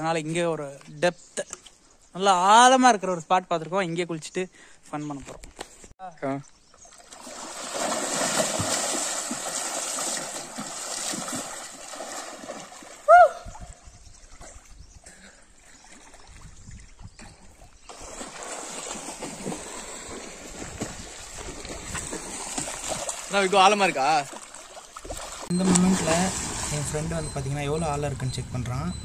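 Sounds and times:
stream water running and splashing: 0:06.6 - 0:28.0.

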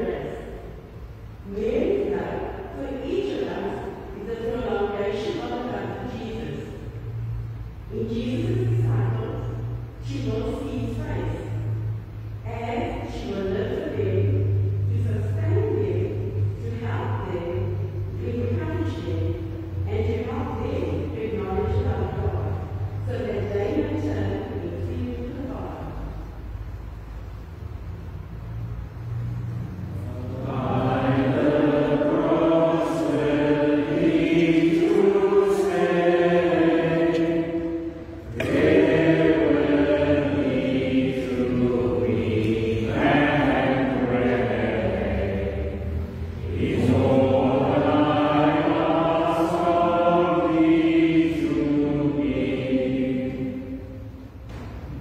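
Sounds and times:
chant-like hymn singing: 0:00.0 - 0:00.8, 0:29.7 - 0:55.0.

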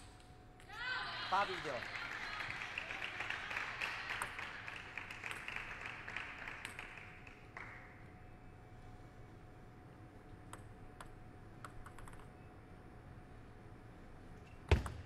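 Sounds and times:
table tennis ball bouncing: 0:05.2 - 0:05.5, 0:06.5 - 0:07.0, 0:10.5 - 0:12.3.

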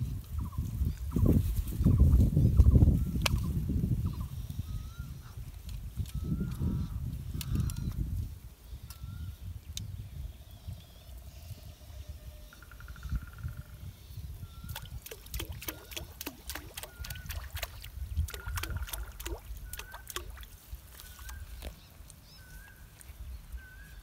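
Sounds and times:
sharp clicking animal calls: 0:06.0 - 0:08.0, 0:14.7 - 0:21.9.

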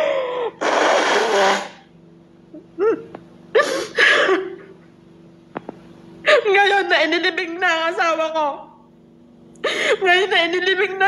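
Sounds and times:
woman sobbing: 0:00.0 - 0:00.6, 0:02.5 - 0:04.8, 0:06.2 - 0:06.8, 0:09.6 - 0:11.0
woman blowing her nose: 0:00.0 - 0:01.9, 0:03.6 - 0:04.4.

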